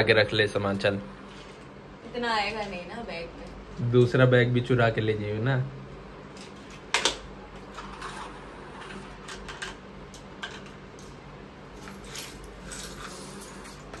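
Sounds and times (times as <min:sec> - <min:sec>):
plastic boxes and jewellery rattling: 0:11.8 - 0:14.0.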